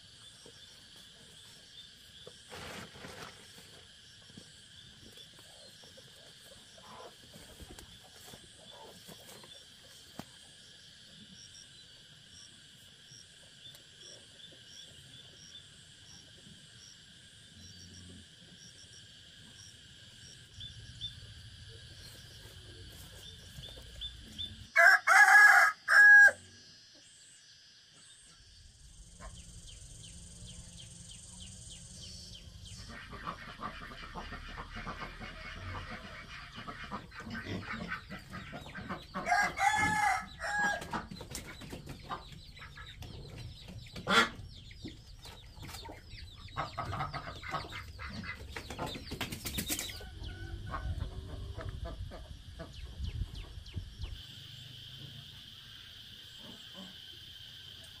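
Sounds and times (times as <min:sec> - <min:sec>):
chickens clucking: 0:04.4 - 0:10.4, 0:32.3 - 0:54.2.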